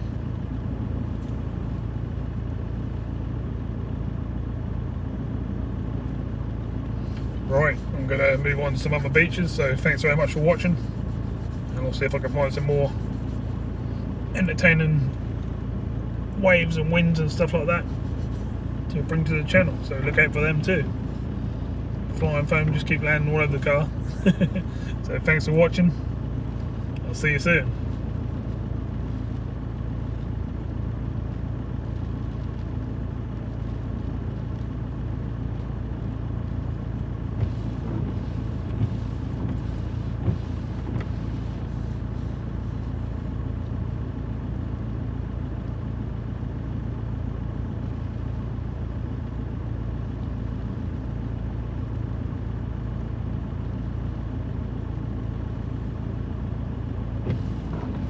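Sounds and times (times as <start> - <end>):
strong wind buffeting a car: 37.0 - 42.2, 57.2 - 58.0.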